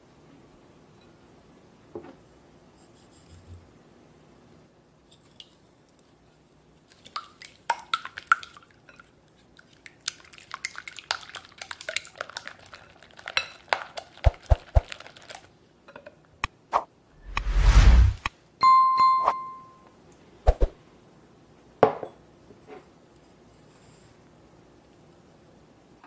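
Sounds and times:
swoosh sound effect: 0:17.2 - 0:18.3.

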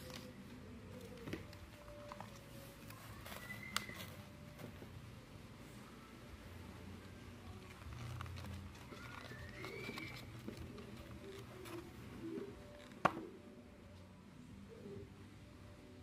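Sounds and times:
bird chirping faintly: 0:08.7 - 0:12.8.

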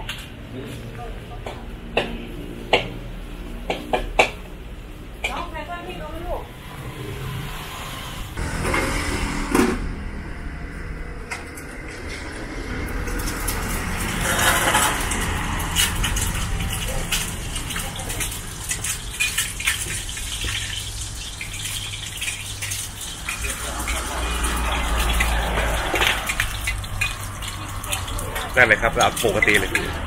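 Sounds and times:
kitchen background noise: 0:11.3 - 0:30.0
metal cookware clinking and scraping: 0:13.1 - 0:30.0.

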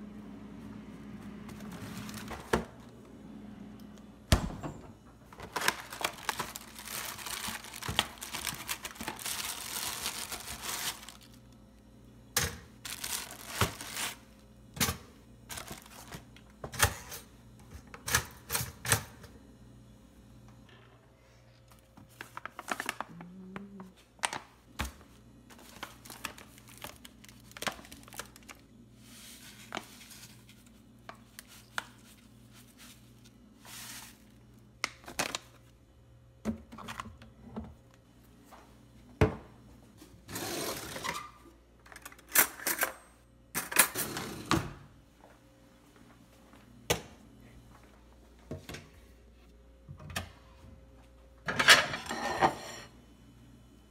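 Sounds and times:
faint steady hum: 0:00.0 - 0:53.9
clicks and knocks of kitchen items: 0:41.1 - 0:44.8.

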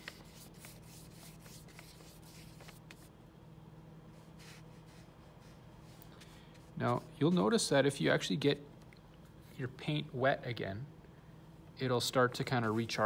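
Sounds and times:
brush strokes on paper: 0:00.0 - 0:03.1
low electrical hum: 0:00.0 - 0:13.0.

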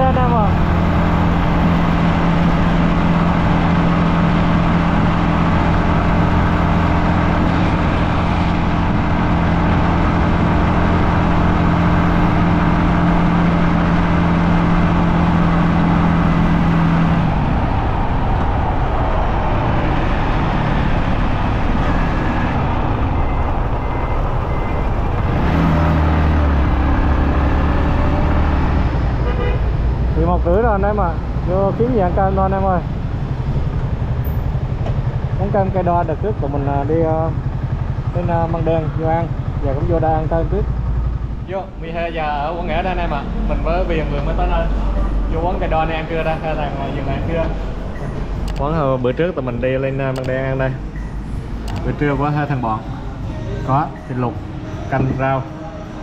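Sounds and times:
motorcycle engine cruising: 0:00.0 - 0:56.0
heavy wind noise: 0:15.3 - 0:25.4.

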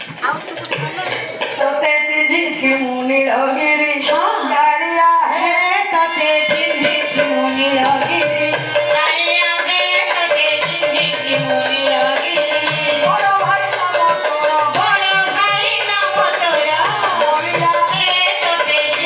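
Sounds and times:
hand drum beat: 0:00.0 - 0:01.9, 0:05.4 - 0:19.0
woman singing: 0:01.6 - 0:19.0.

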